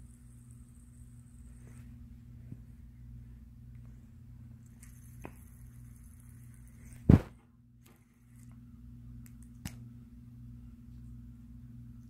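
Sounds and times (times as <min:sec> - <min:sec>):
steady low hum: 0:00.0 - 0:12.0
loud short thump: 0:07.1 - 0:07.4.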